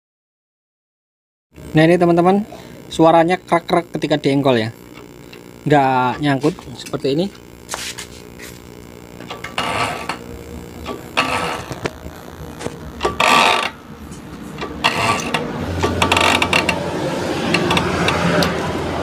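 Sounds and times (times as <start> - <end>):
motorcycle kick-start ratcheting crunches: 12.6 - 18.4.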